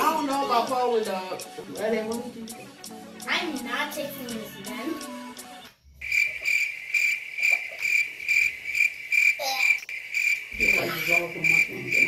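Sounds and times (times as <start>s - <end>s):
music: 0.0s - 6.0s
cricket chirping: 6.0s - 12.0s.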